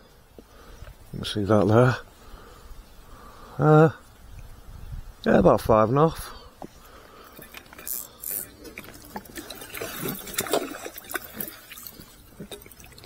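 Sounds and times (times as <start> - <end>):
water splashing: 7.2 - 13.0
water dripping: 7.3 - 13.0.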